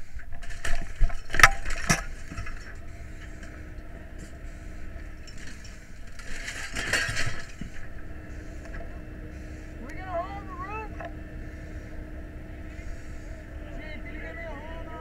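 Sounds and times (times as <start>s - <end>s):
scraping rustle: 0.0s - 9.8s
steady low rumble: 0.0s - 15.0s.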